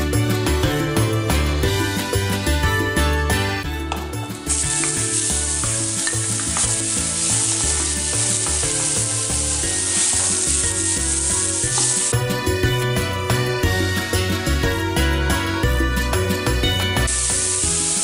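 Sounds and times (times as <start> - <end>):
onion sizzling in hot oil: 4.1 - 14.6, 16.2 - 18.0.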